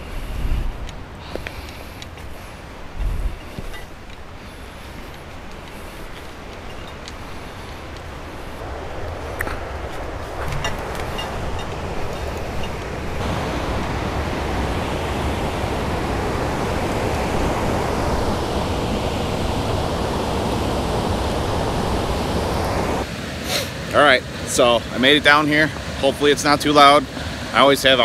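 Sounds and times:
water rushing through spillway: 9.1s - 23.1s.

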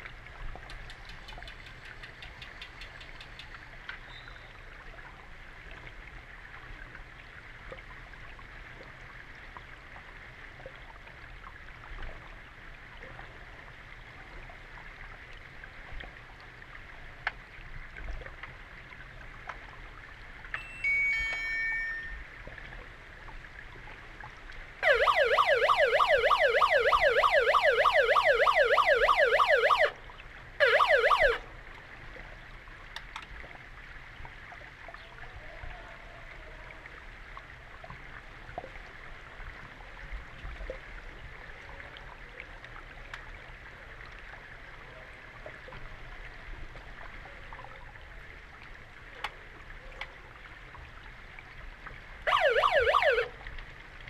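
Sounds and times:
faint underwater clicks: 0.0s - 5.1s, 17.2s - 19.8s, 31.1s - 33.6s, 42.4s - 44.4s, 48.6s - 50.9s
underwater warbling siren: 20.6s - 22.6s, 24.8s - 30.0s, 30.6s - 31.5s, 52.3s - 53.5s.

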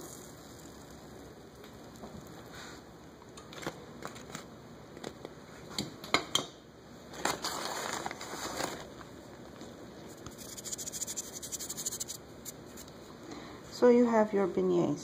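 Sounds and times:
rustling and scraping: 7.2s - 8.9s.

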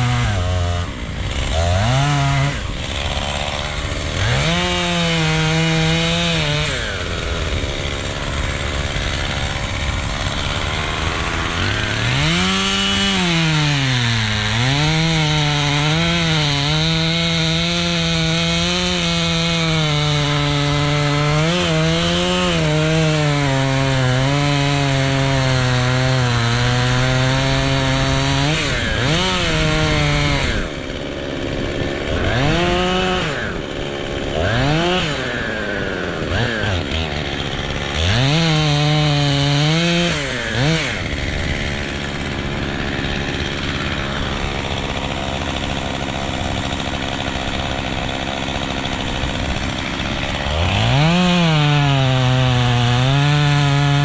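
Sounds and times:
chainsaw cutting tree trunk: 0.0s - 54.0s.

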